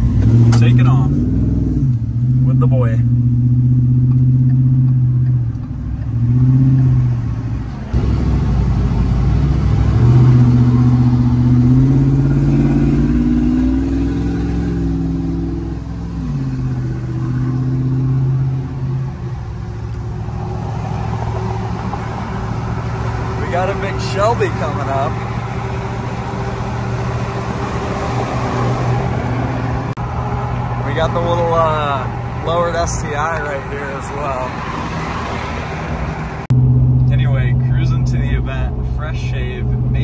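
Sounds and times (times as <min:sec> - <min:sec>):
car engine: 0:00.0 - 0:40.0
road noise rumble: 0:00.0 - 0:40.0.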